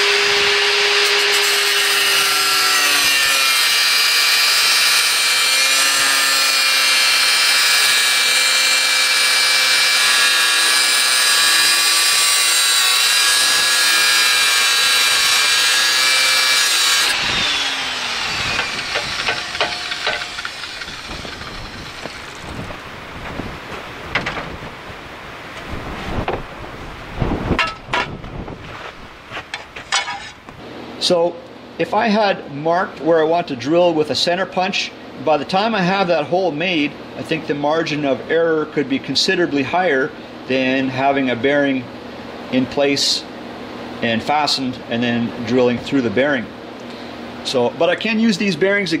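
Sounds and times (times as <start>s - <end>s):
electric drill whining: 0.0s - 22.8s
metal knocking and scraping: 18.5s - 24.6s, 27.6s - 28.2s, 29.5s - 30.4s.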